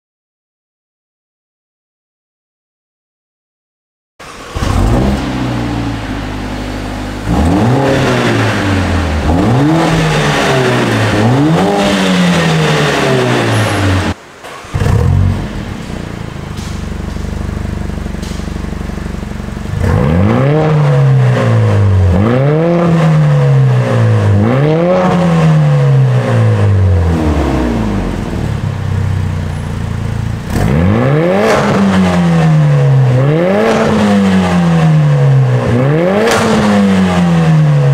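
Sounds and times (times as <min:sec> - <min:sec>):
car engine revving in blips: 0:04.2 - 0:37.9.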